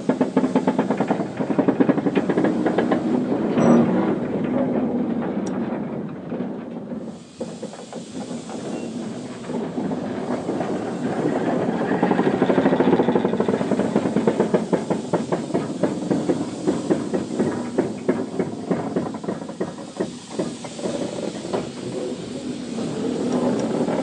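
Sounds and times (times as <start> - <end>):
steam hiss: 0.0 - 24.0
steam locomotive chuffing: 0.0 - 24.0.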